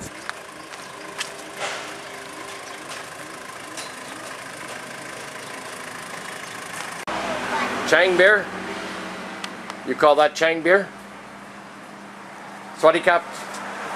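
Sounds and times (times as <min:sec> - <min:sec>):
pickup truck engine running: 0:00.0 - 0:09.9.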